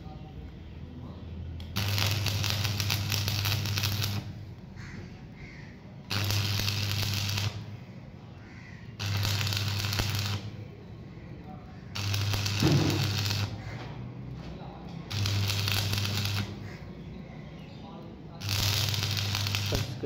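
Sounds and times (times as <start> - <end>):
welding machine low hum: 1.6 - 4.9, 6.1 - 8.0, 8.6 - 10.9, 11.7 - 16.8, 18.4 - 20.0
welding arc crackling and sizzling: 1.7 - 4.4, 6.1 - 7.9, 8.9 - 10.6, 11.9 - 13.8, 15.0 - 16.8, 18.4 - 20.0.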